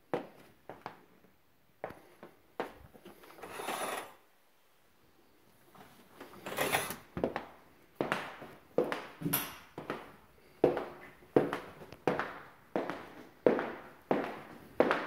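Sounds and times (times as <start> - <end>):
closet door scraping: 3.2 - 4.2, 6.3 - 7.2
footsteps: 5.7 - 15.0.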